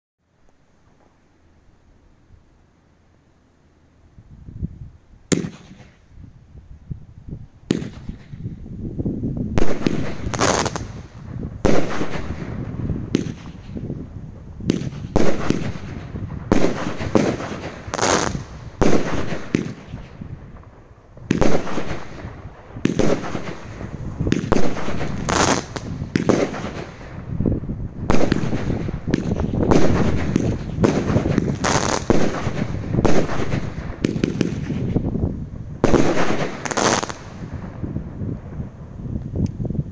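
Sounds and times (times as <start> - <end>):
firework bangs: 5.3 - 6.1, 7.6 - 8.6, 9.5 - 38.9
firework crackling: 5.3 - 6.3, 7.6 - 39.9.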